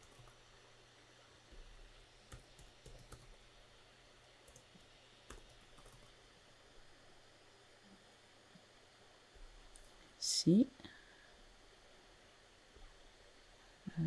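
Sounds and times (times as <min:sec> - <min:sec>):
keyboard typing: 0:00.0 - 0:00.4, 0:02.3 - 0:03.4, 0:04.4 - 0:06.2.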